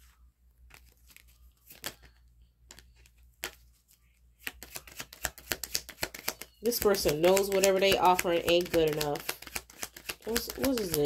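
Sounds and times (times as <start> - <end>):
deck of cards being shuffled: 0.0 - 11.0
cards snapping and flicking: 0.7 - 2.1, 4.4 - 11.0.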